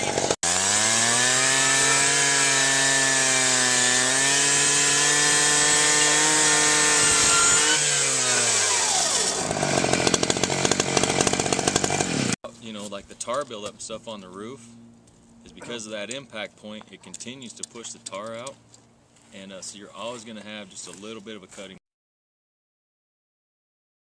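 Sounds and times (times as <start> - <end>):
rescue saw engine whining: 0.0 - 12.4
saw blade rasping through metal: 0.0 - 12.4.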